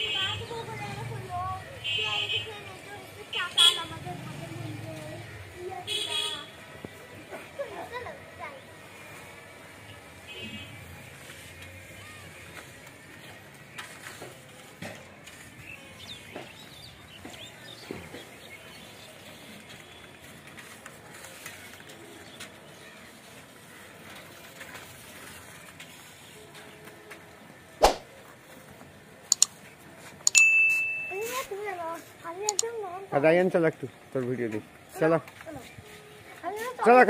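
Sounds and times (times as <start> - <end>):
sharp knock: 27.8 - 28.0
light clicks: 29.3 - 29.5.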